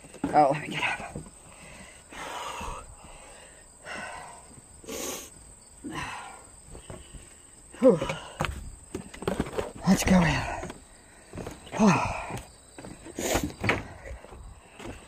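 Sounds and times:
cricket trill: 0.0 - 15.0
person huffing breaths: 1.4 - 8.6, 10.5 - 15.0.

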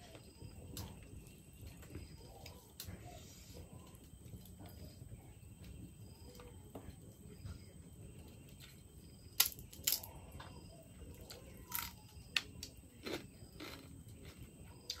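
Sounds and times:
sharp clicks and crunches: 9.4 - 10.2.

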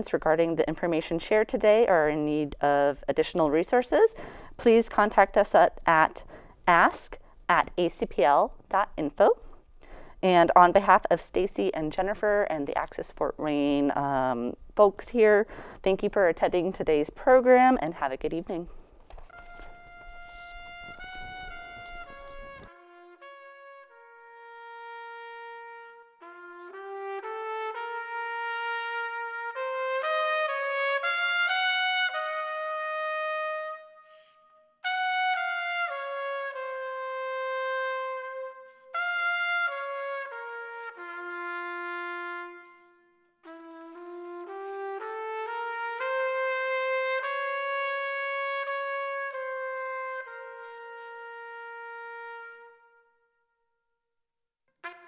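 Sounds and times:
instrumental music with brass: 19.2 - 53.2, 54.8 - 55.0.

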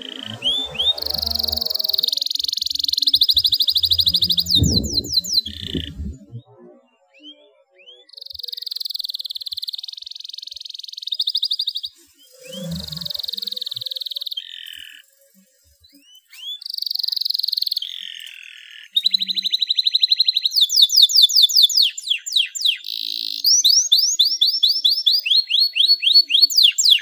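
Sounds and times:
canary singing: 0.0 - 6.4.

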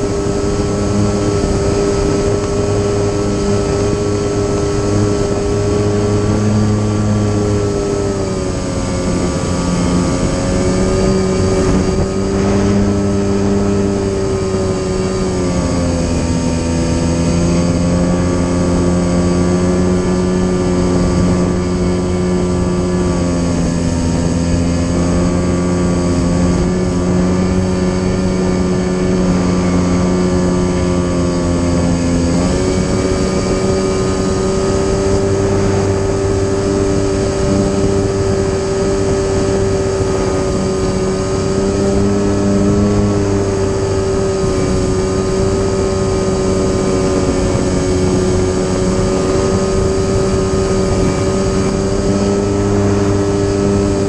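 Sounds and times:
model plane electric motor drone: 0.0 - 54.0.

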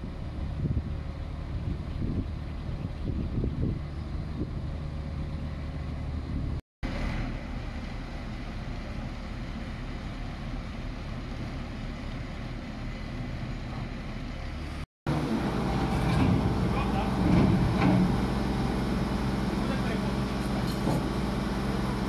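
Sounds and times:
diesel engine running: 0.0 - 22.0.

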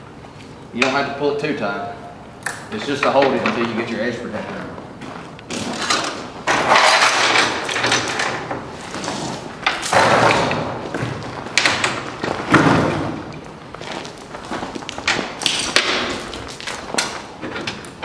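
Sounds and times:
heavy chains rattling: 6.6 - 10.8, 15.1 - 18.0
chains knocking against metal: 6.7 - 8.4, 9.7 - 10.6, 15.4 - 16.8.

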